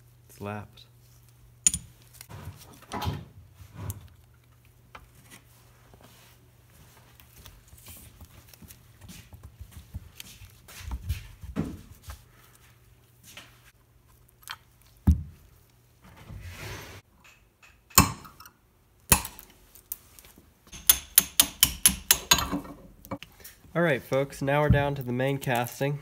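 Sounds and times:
hammer tapping on metal: 20.7 - 22.6.

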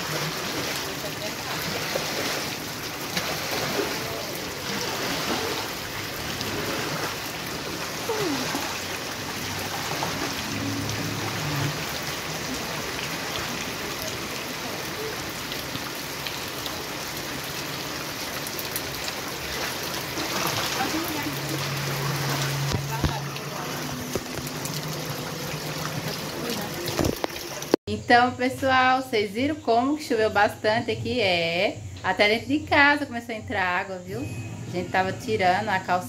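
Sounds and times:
squeegee pushing water: 0.0 - 14.9, 18.4 - 27.8
heavy rain on pavement: 0.0 - 27.8.

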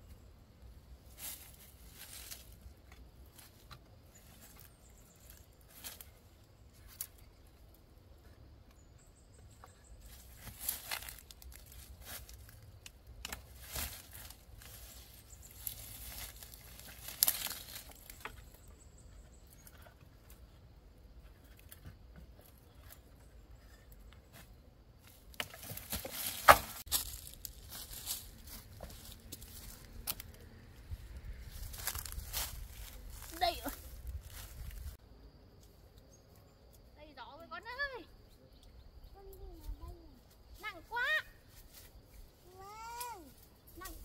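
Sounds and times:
rustling and crackling: 10.0 - 20.5.

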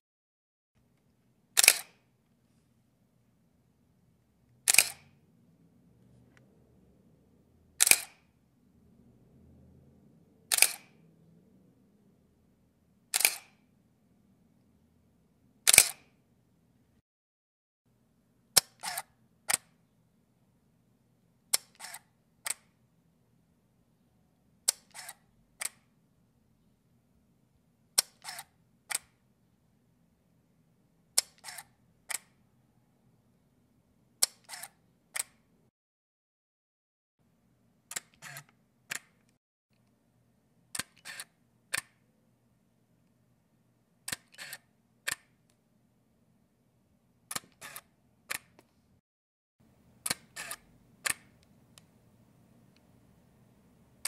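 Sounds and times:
camera shutter clicks: 1.6 - 2.0, 4.7 - 5.0, 7.8 - 8.2, 10.5 - 10.9, 13.1 - 13.6, 15.7 - 16.1, 18.6 - 19.6, 21.6 - 22.6, 24.8 - 25.8, 28.0 - 29.1, 31.3 - 32.2, 34.4 - 35.3, 37.9 - 39.0, 40.8 - 41.8, 44.1 - 44.6, 47.3 - 48.4, 50.0 - 51.2.

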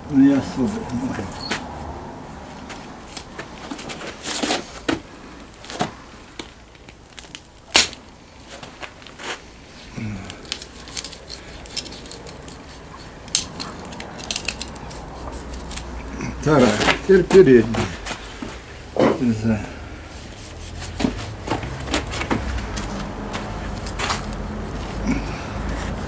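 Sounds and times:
cartilage cracking and snapping: 6.4 - 8.2.

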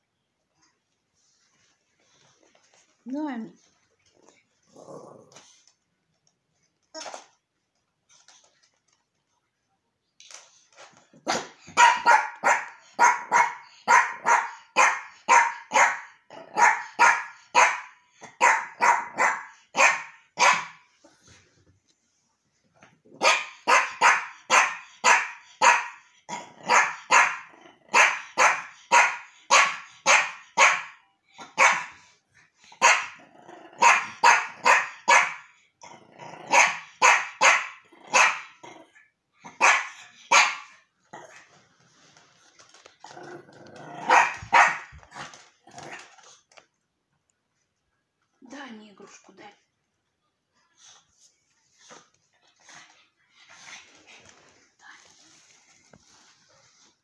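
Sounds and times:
small dog barking: 11.3 - 20.8, 23.2 - 26.0, 26.6 - 31.9, 32.8 - 33.2, 33.8 - 35.5, 36.5 - 38.6, 39.5 - 40.7, 44.0 - 44.9.

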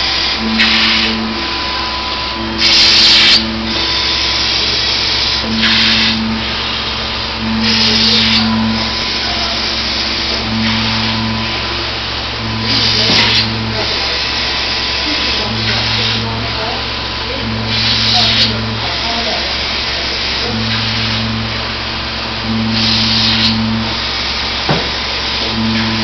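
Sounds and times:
laminating machine hum: 0.0 - 26.0
hissing surge: 0.1 - 16.3.

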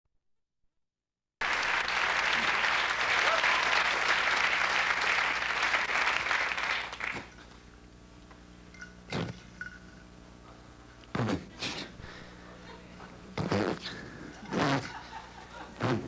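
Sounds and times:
audience applauding: 1.4 - 7.3.

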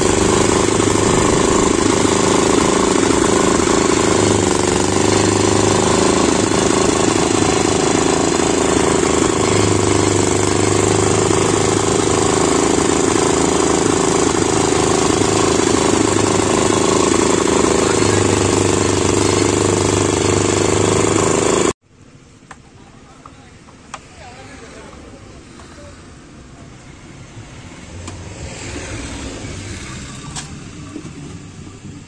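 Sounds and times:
small engine pulsing drone: 0.0 - 21.7.

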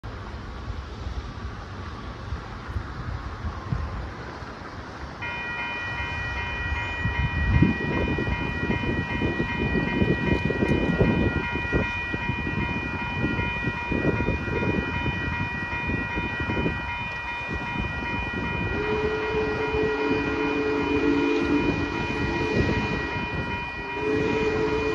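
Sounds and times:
wind rumble on microphone: 2.2 - 4.7, 7.0 - 24.9
railroad crossing bells ringing: 5.2 - 24.9.

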